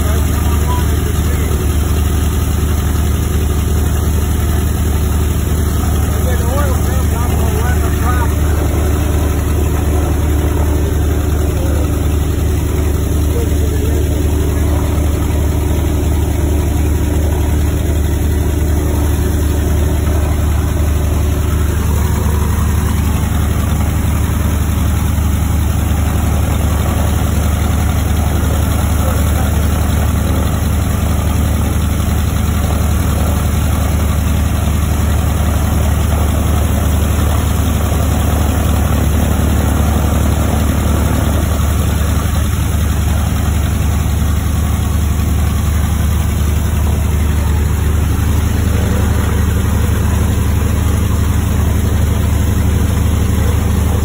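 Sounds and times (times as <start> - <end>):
radial aircraft engine idling: 0.0 - 54.0.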